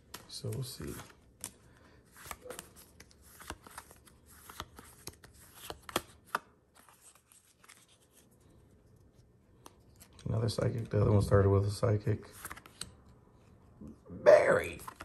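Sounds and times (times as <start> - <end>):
trading cards clicking and rustling: 0.0 - 8.3, 12.2 - 13.1, 14.6 - 15.0.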